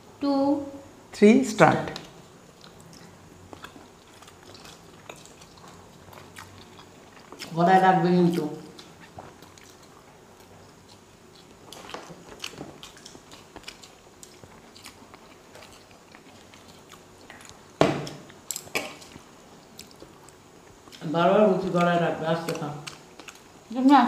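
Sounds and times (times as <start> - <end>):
people chewing quietly: 1.9 - 24.0.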